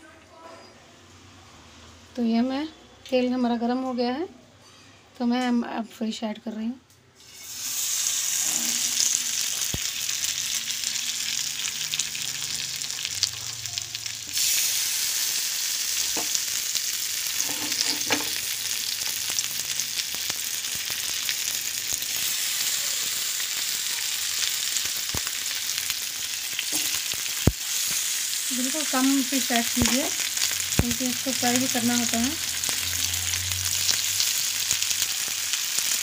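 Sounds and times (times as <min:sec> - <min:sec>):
fish sizzling in a pan: 0:07.2 - 0:36.0.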